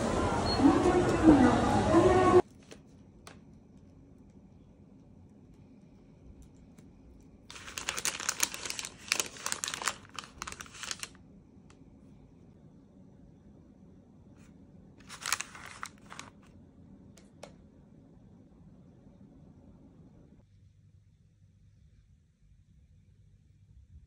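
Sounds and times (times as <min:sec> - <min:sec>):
paper bags crinkling: 0:07.5 - 0:11.2, 0:15.0 - 0:16.5.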